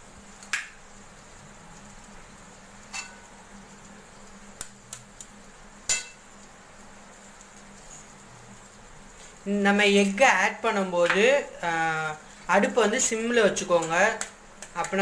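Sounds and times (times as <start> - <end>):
eggs tapping on metal pan: 5.9 - 6.2, 13.8 - 15.0.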